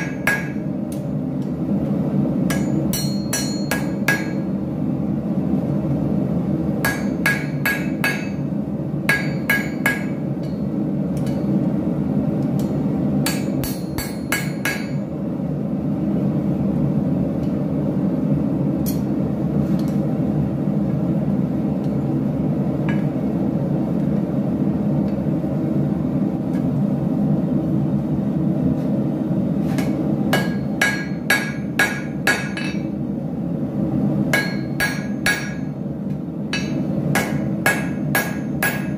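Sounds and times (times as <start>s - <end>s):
hammer striking metal on anvil: 0.0s - 0.7s, 2.5s - 4.5s, 6.8s - 8.5s, 9.1s - 11.5s, 12.6s - 15.1s, 29.8s - 32.9s, 34.3s - 35.8s, 36.5s - 38.9s.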